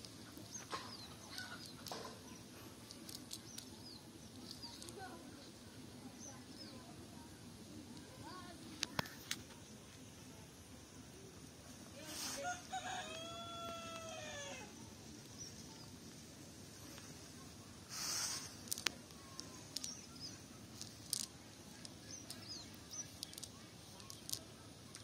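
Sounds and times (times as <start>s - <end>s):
net rustling on grass: 12.0s - 13.0s
rooster crowing: 12.4s - 14.7s.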